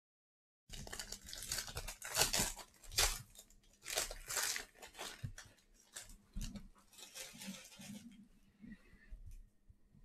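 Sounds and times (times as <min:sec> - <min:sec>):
packaging tearing and crinkling: 0:00.7 - 0:08.1.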